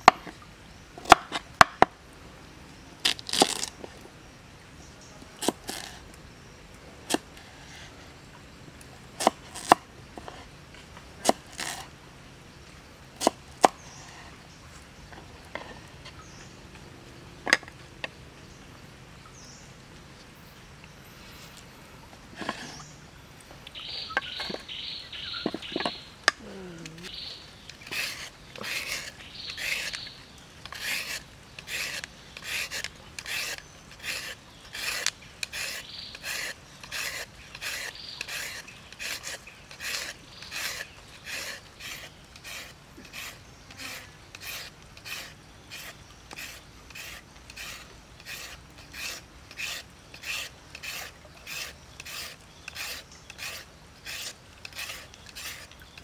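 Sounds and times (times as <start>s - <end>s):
peeler scraping carrot: 9.2s - 9.8s, 26.8s - 56.0s.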